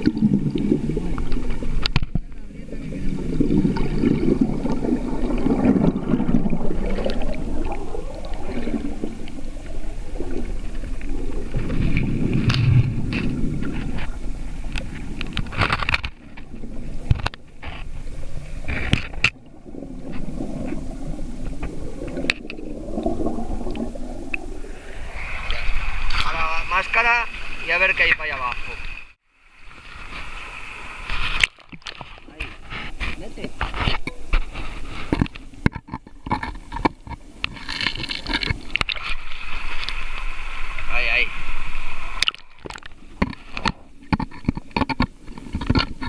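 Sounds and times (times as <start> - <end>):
underwater river current rushing: 0.0 - 46.0
camera housing scraping rock: 11.6 - 18.0, 18.6 - 19.4, 31.0 - 40.2, 42.2 - 46.0.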